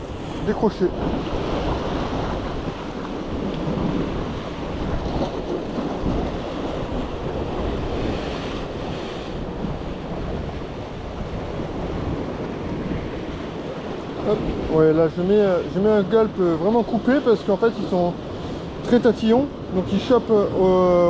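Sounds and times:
sea waves washing on rocks: 0:00.0 - 0:21.0
wind buffeting microphone: 0:00.0 - 0:21.0.

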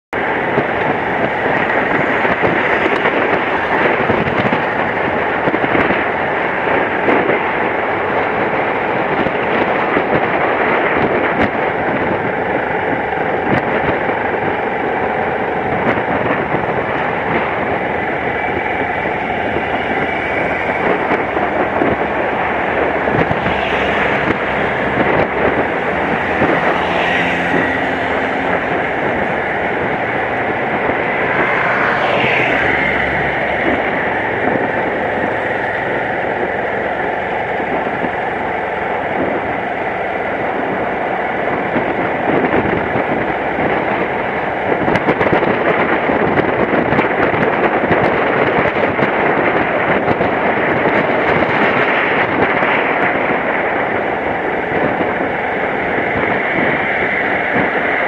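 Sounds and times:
wind rush on microphone: 0:00.1 - 0:58.0.

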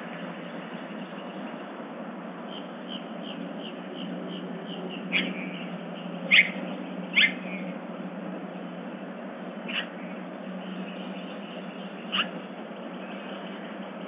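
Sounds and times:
steady low hum: 0:00.0 - 0:14.0
loud down-slurred bird calls: 0:02.5 - 0:07.8, 0:09.6 - 0:13.8.

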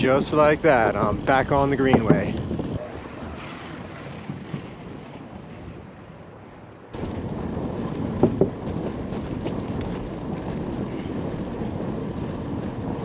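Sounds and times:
bicycle rolling on wooden boards: 0:00.0 - 0:06.4, 0:07.0 - 0:13.0
wind on microphone: 0:00.0 - 0:13.0
short knocks: 0:01.8 - 0:02.3.

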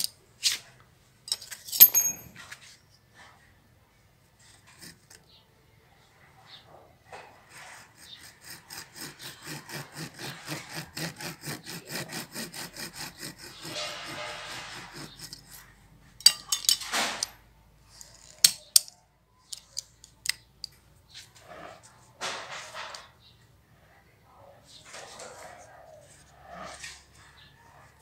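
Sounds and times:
hand saw cutting branch: 0:07.5 - 0:15.7.

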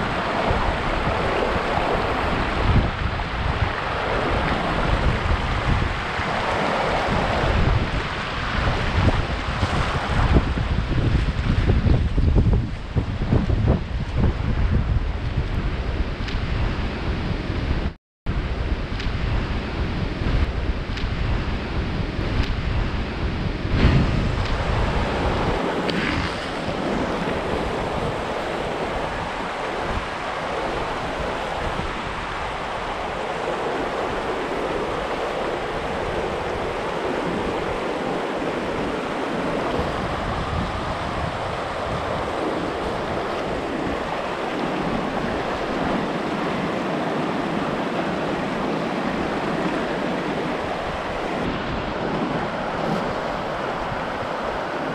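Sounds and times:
river rushing over rocks: 0:00.0 - 0:10.5, 0:24.2 - 0:54.9
wind on microphone: 0:00.0 - 0:54.9.

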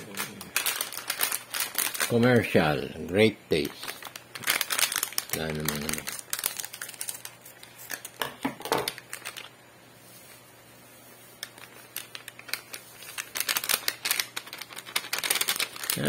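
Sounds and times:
sachet crinkling: 0:00.0 - 0:02.7, 0:03.5 - 0:08.2, 0:08.9 - 0:09.6, 0:11.3 - 0:16.0.

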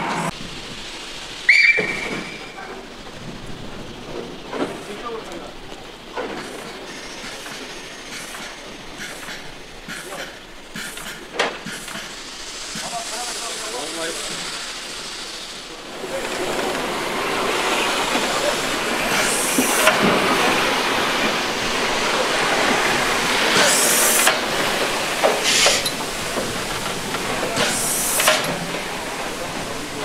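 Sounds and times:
loud bursts of steam: 0:00.0 - 0:30.0
steady steam hiss: 0:00.0 - 0:30.0.

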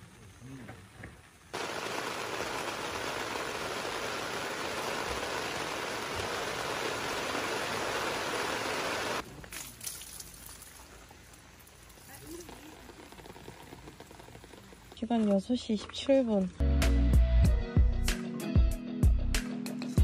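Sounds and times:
rain on tent fabric: 0:01.5 - 0:15.0.

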